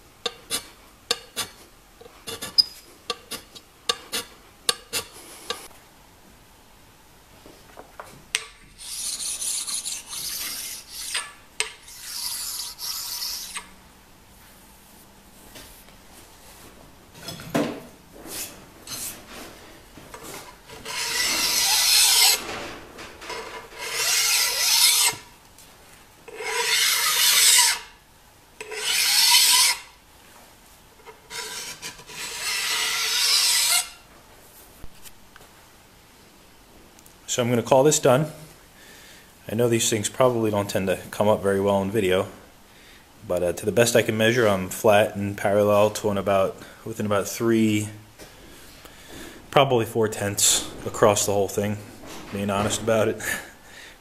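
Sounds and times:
file strokes on cast iron: 0.3s - 5.7s, 8.8s - 13.7s, 20.7s - 22.4s, 23.6s - 25.3s, 26.3s - 28.0s, 28.6s - 29.9s, 31.1s - 34.0s.

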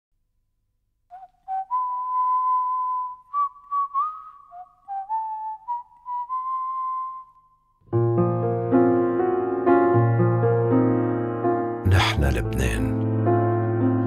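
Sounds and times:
person whistling a slow tune: 1.1s - 7.8s.

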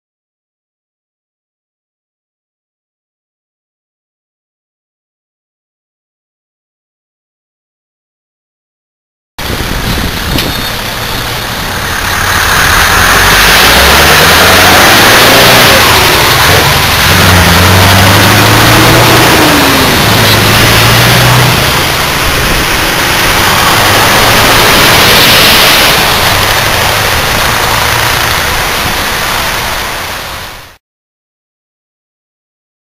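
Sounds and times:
wind noise: 9.4s - 30.7s
road noise: 9.4s - 30.8s
truck engine pulling away: 9.4s - 30.8s.

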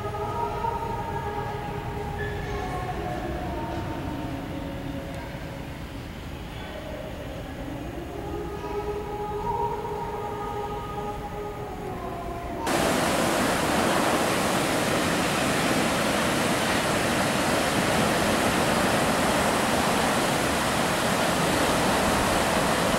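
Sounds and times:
surf breaking on rocky shore: 12.7s - 22.9s.

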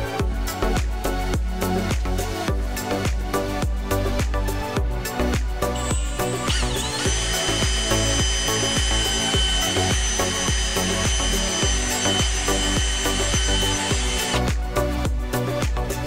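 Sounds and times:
background music with steady beat: 0.0s - 16.0s
cordless drill whining: 5.7s - 14.6s.

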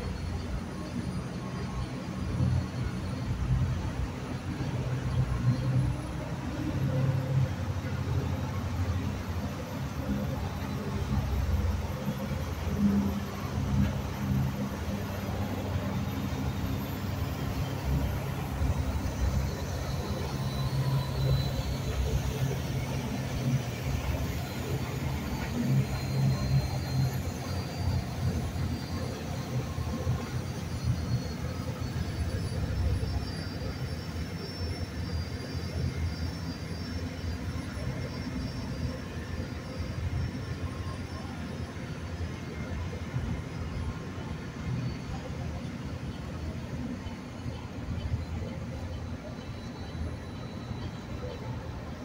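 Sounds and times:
boat engines rumbling: 0.0s - 52.0s.

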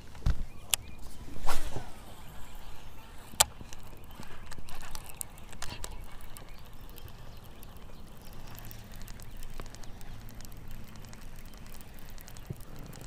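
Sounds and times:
fishing reel ticking: 0.0s - 13.0s
open water ambience: 0.0s - 13.0s.

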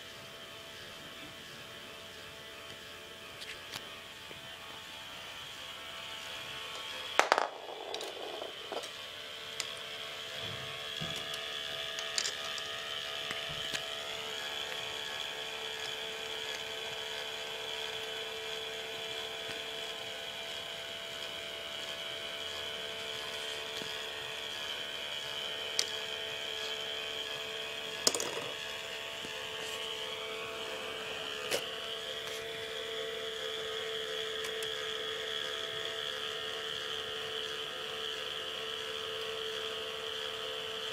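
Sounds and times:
motor and gear whine: 0.0s - 40.9s
plastic balls clacking on track: 7.2s - 8.9s, 11.2s - 12.7s, 28.0s - 28.6s.

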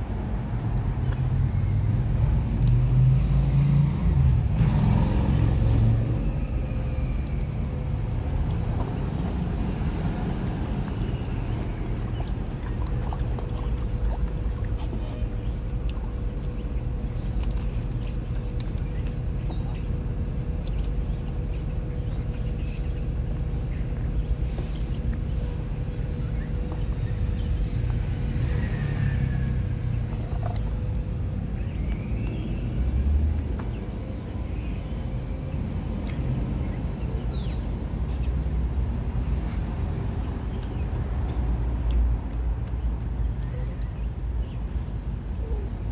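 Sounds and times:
small birds chirping: 4.6s - 45.9s
steady low rumble: 5.2s - 45.9s.

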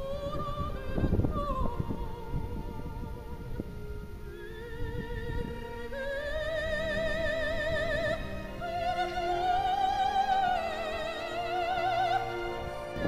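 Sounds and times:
soft musical accompaniment: 0.0s - 13.0s
operatic voice singing: 4.4s - 13.0s.

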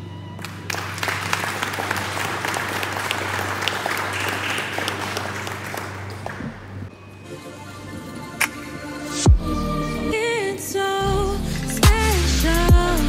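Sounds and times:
audience applauding: 0.4s - 6.9s.

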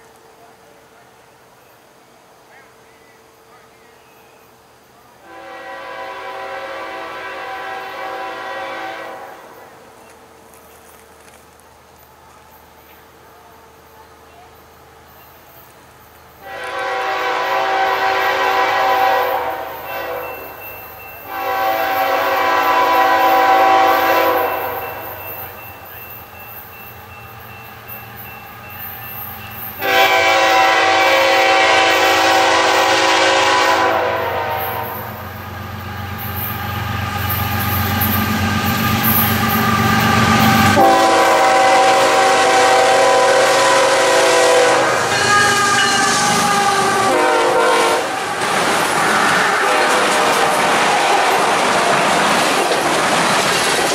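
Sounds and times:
locomotive air horn blasts: 5.2s - 9.7s, 16.4s - 20.6s, 21.3s - 25.2s, 29.8s - 35.2s, 39.1s - 48.3s.

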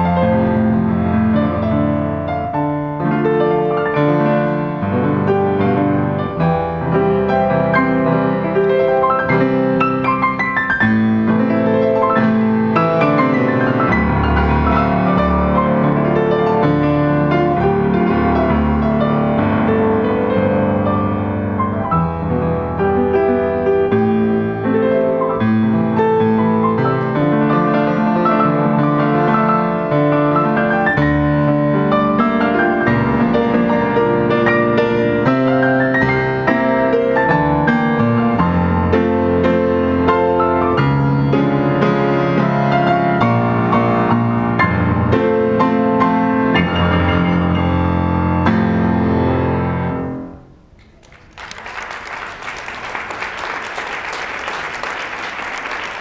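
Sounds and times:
solo grand piano piece: 0.0s - 56.0s
audience applauding: 50.8s - 56.0s.

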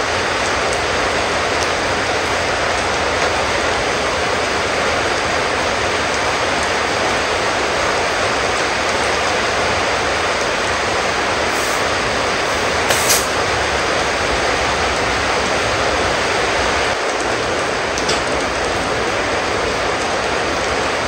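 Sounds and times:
loud rushing noise: 11.1s - 14.3s.

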